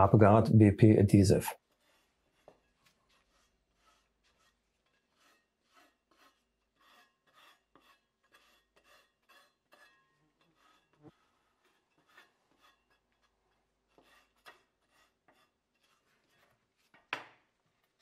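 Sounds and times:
spatula scraping: 1.6 - 17.1.

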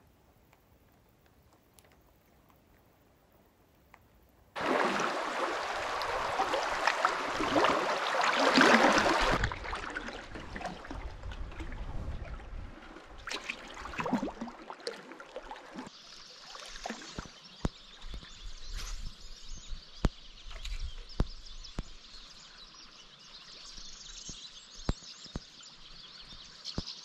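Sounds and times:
shallow river trickling: 0.0 - 27.0
canoe paddle strokes in water: 4.6 - 15.9.

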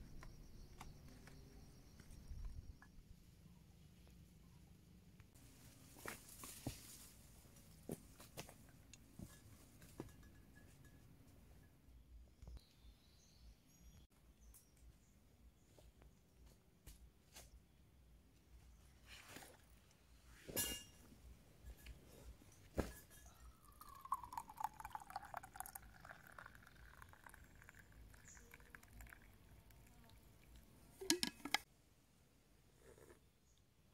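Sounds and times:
faint high bird chirps: 0.0 - 3.8, 27.0 - 30.1
drink pouring into a steel mug: 23.3 - 31.6.

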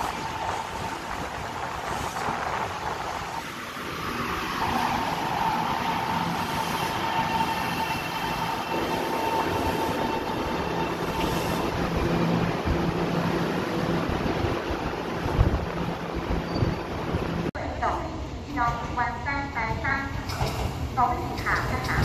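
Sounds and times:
electric train whine: 0.0 - 17.5.

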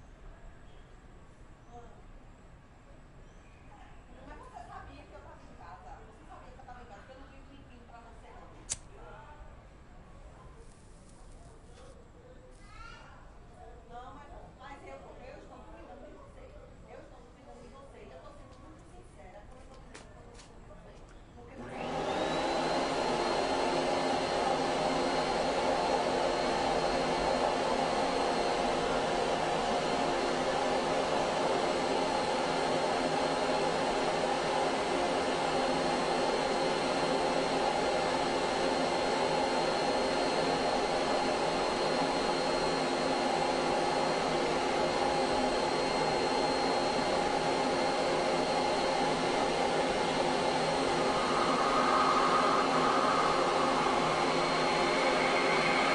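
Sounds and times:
vacuum cleaner motor running: 21.6 - 55.9.

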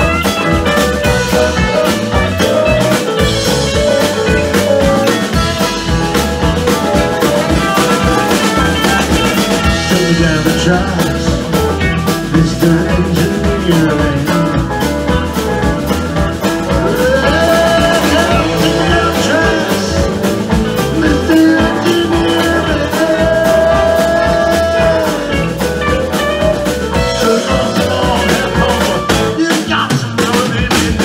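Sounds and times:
guitar lead sliding notes: 0.0 - 29.4
drum kit: 0.0 - 31.0
electric guitars: 0.0 - 31.0.

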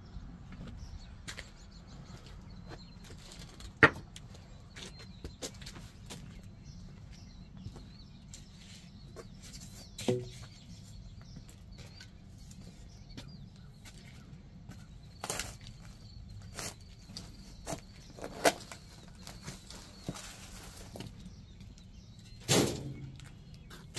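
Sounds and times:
sharp metallic clank: 22.5 - 23.2.

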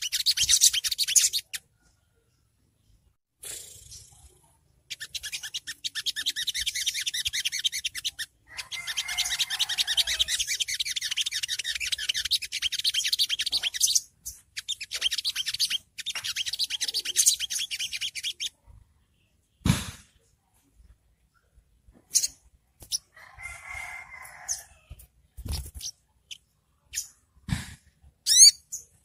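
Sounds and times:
bird chattering trill: 0.0 - 1.7, 3.5 - 18.5, 28.3 - 28.9.

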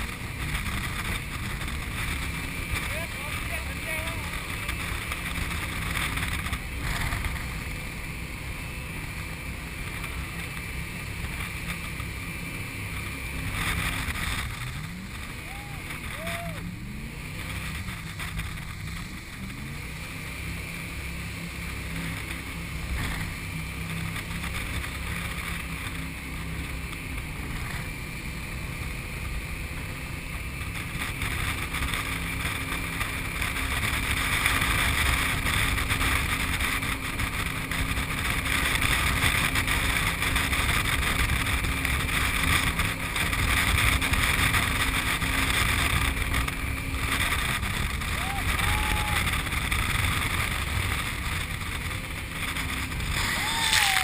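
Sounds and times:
boat engine drone: 0.0 - 54.0
wind: 0.0 - 54.0.

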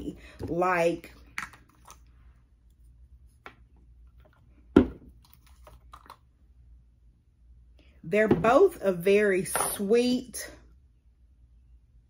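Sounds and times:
plastic bottles and caps clicking: 4.2 - 6.2
plastic bottle knock: 4.7 - 5.1.

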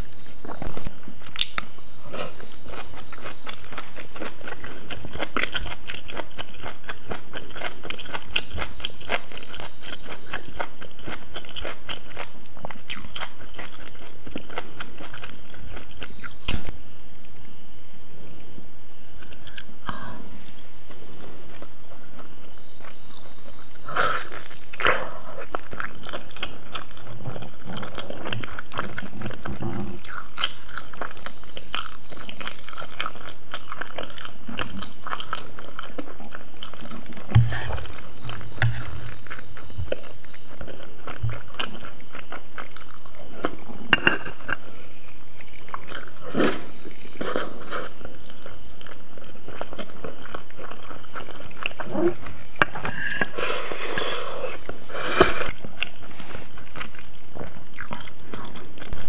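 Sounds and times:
wet chewing clicks and smacks: 0.3 - 16.7, 21.6 - 44.6, 56.6 - 59.0.

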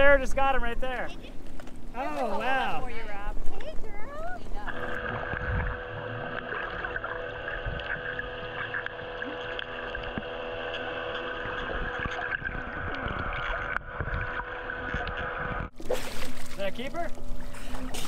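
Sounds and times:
muffled underwater hum: 2.9 - 15.8
underwater gurgles and clicks: 2.9 - 18.0.

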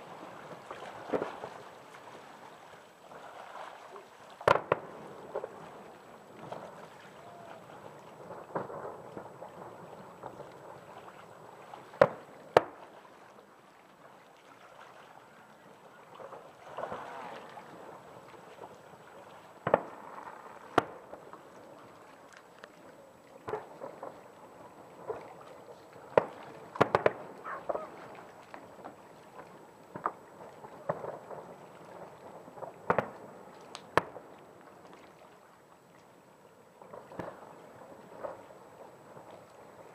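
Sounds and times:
distant fireworks bangs: 4.4 - 13.0, 15.9 - 22.0, 23.4 - 34.3, 36.8 - 39.9.

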